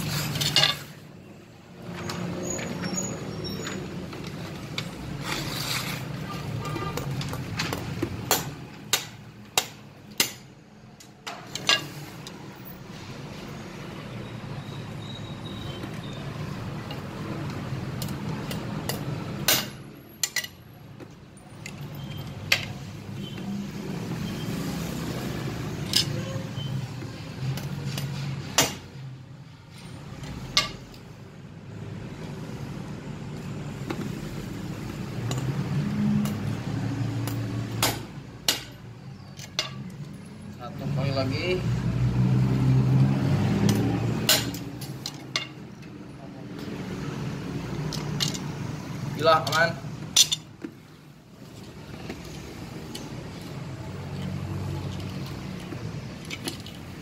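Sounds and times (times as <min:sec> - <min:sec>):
machete striking steel nails: 0:08.3 - 0:10.5, 0:37.3 - 0:38.8, 0:43.6 - 0:44.8.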